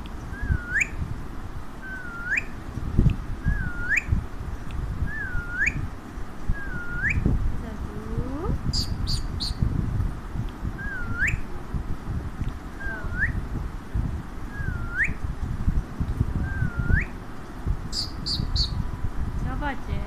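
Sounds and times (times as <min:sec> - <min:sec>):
high chirps: 0:00.3 - 0:01.0, 0:08.7 - 0:09.6, 0:17.9 - 0:18.8.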